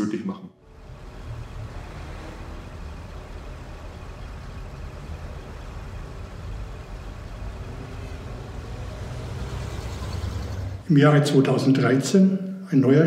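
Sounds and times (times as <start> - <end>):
distant city traffic rumble: 0.6 - 11.2.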